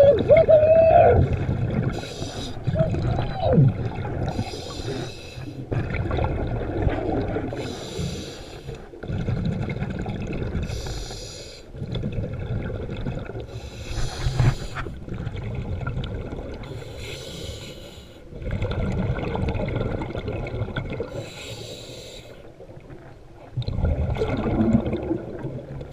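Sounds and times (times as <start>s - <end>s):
exhaled bubbles rumbling: 0.0s - 8.2s, 8.8s - 11.1s, 11.7s - 16.9s, 18.3s - 21.4s, 22.4s - 25.9s
regulator inhale hiss: 2.0s - 2.6s, 4.4s - 5.6s, 7.6s - 8.8s, 10.7s - 11.7s, 13.5s - 14.9s, 16.7s - 18.3s, 21.2s - 22.5s.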